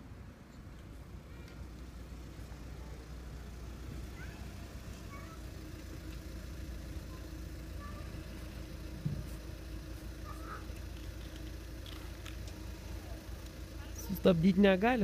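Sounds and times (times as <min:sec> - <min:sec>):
vehicle engine idling: 0:00.0 - 0:15.0
dull thump: 0:09.0 - 0:09.5.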